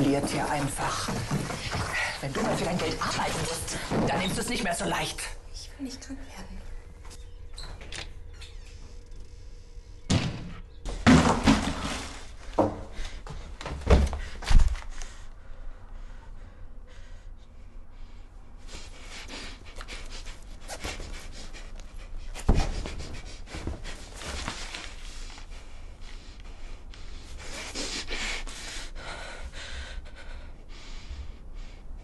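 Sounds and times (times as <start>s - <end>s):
heavy thumps: 0.0s - 5.0s, 10.1s - 14.7s
young woman panting heavily: 12.9s - 24.5s, 25.3s - 32.0s.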